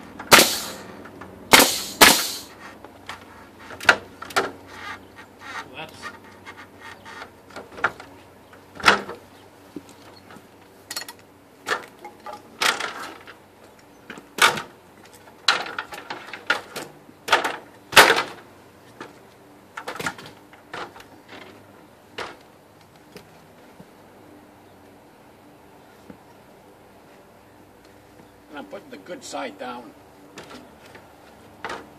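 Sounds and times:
loud bangs: 0.3 - 0.8, 1.5 - 2.5
wood pieces knocking: 14.1 - 18.4.

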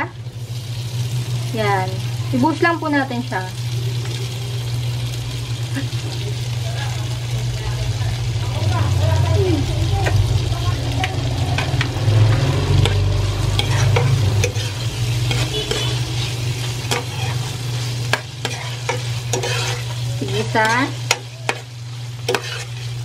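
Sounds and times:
tofu sizzling in a pot: 0.0 - 23.0
steady low hum: 7.1 - 23.0
spatula scraping and tapping pot: 13.6 - 16.3, 18.1 - 22.9.

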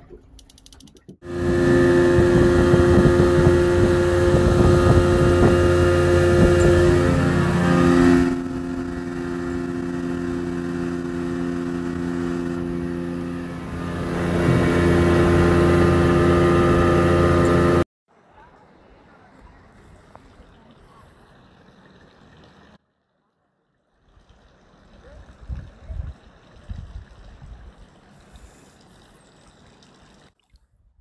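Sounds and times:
outboard motor running: 1.2 - 17.8.

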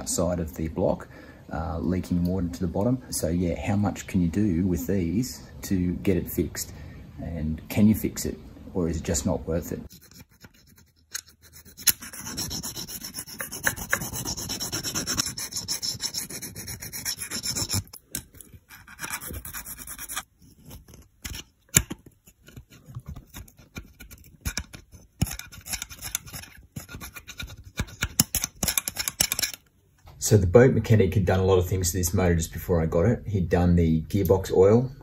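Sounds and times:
close rubbing and scraping: 9.5 - 29.7.

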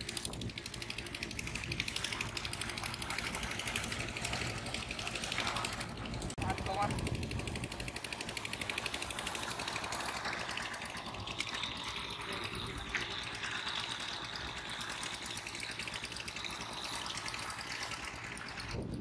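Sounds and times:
small engine running: 0.0 - 19.0.

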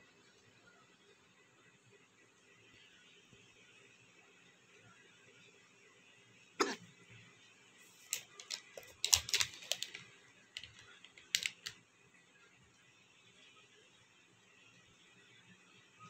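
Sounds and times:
plastic wrapper crackling: 8.1 - 10.0.

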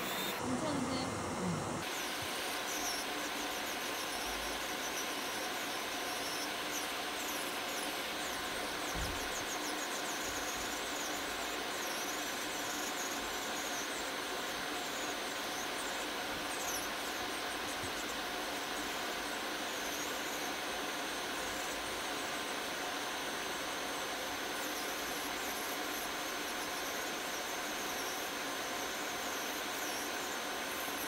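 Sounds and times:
electric nail drill whining: 0.0 - 31.0.

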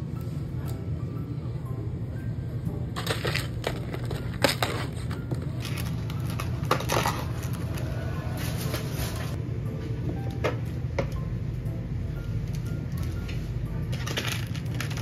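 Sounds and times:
steady low hum: 0.0 - 15.0
paper and cardboard crinkling: 3.0 - 9.4, 13.9 - 15.0.

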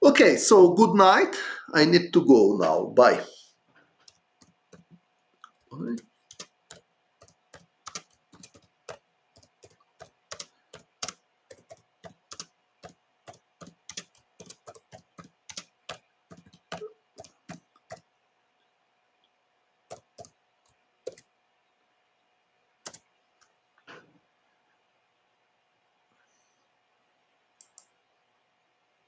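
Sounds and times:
typing on computer keyboard: 4.0 - 18.1, 19.9 - 21.3, 22.8 - 23.1.

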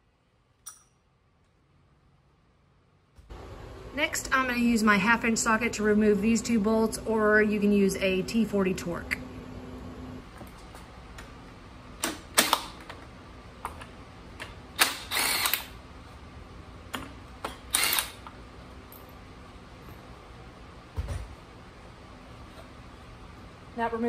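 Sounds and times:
cordless drill spinning: 15.0 - 15.7, 17.7 - 18.2.

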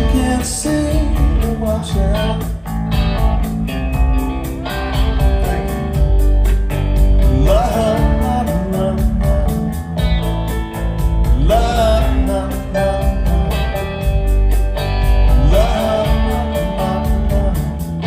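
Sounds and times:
man singing: 0.0 - 2.6, 4.7 - 6.0, 7.2 - 10.1, 11.2 - 14.2, 15.2 - 18.0
electric guitar: 0.0 - 18.0
live rock band playing: 0.0 - 18.0.

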